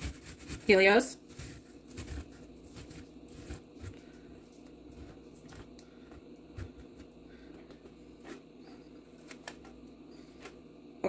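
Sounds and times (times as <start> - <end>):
pear grating on metal grater: 0.0 - 3.6
low room hum: 0.0 - 11.0.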